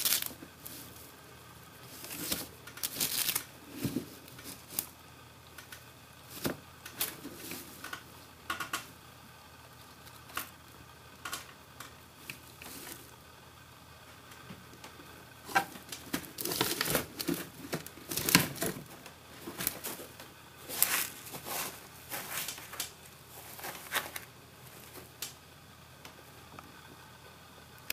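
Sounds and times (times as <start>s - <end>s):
rabbit rustling in litter and hay: 0.0s - 5.0s, 6.2s - 8.3s, 11.8s - 13.2s, 15.3s - 25.2s.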